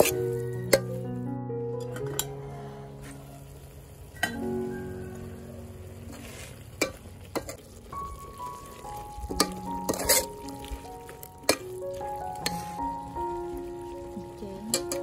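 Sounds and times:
meat sizzling: 0.0 - 15.0
soft background music: 0.0 - 15.0
ladle scraping in pot: 9.4 - 10.4.

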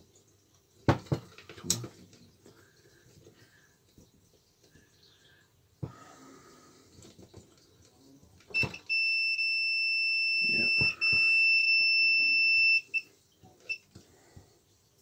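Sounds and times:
multimeter continuity beep: 8.5 - 13.9.

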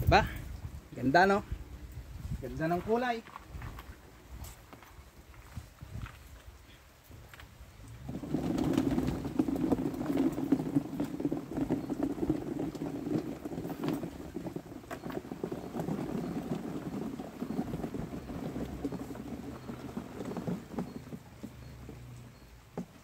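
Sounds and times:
tomatoes tumbling into cardboard box: 8.0 - 23.0.

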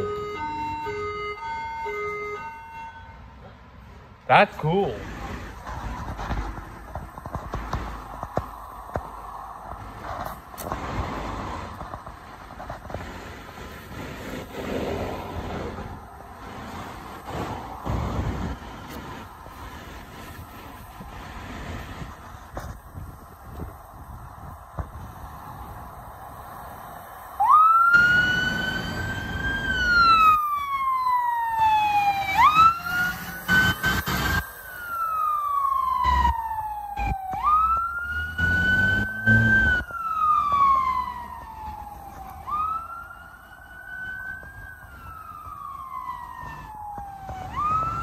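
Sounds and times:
fire engine siren wailing: 0.0 - 3.5, 12.6 - 48.0
truck engine and road noise: 0.0 - 48.0.

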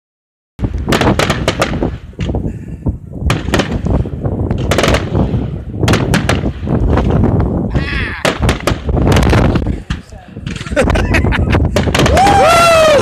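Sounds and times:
firework shells bursting: 0.6 - 2.5, 3.2 - 7.6, 8.2 - 10.9, 11.6 - 12.4.

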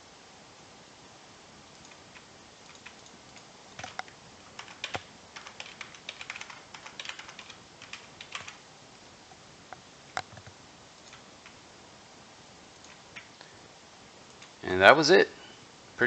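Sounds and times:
faint steady hiss: 0.0 - 16.0
keyboard typing clicks: 1.8 - 3.2, 3.8 - 8.6, 12.8 - 13.5.

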